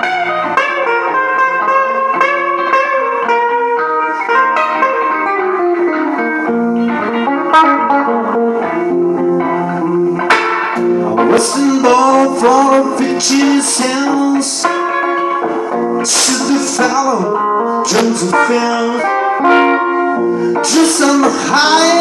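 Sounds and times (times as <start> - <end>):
electric guitar playing blues: 0.0 - 22.0
sharp guitar strum: 0.0 - 22.0.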